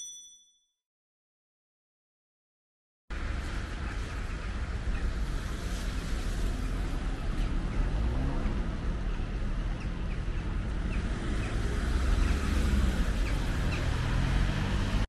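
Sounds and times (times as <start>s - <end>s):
street noise rumble: 3.1s - 15.0s.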